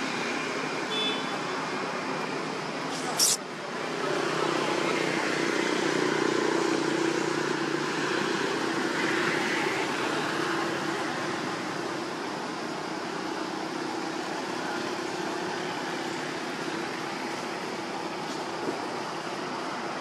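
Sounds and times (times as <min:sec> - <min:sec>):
even hiss: 0:02.9 - 0:03.4.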